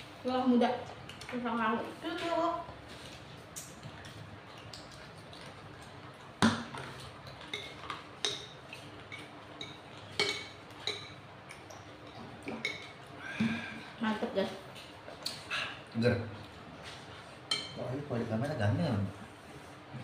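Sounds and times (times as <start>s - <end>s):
cutlery clinking on bowls: 7.3s - 11.2s, 12.0s - 13.0s.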